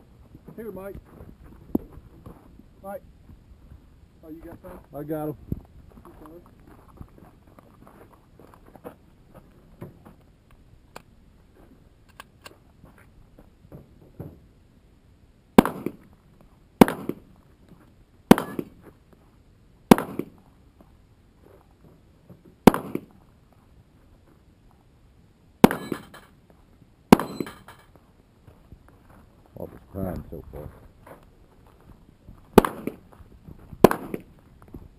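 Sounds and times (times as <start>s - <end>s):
pistol shots at steel targets: 15.6s - 16.0s, 16.8s - 17.2s, 18.3s - 18.8s, 19.9s - 20.4s, 22.6s - 23.1s, 25.6s - 26.3s, 27.1s - 27.8s, 32.6s - 33.0s, 33.8s - 34.3s.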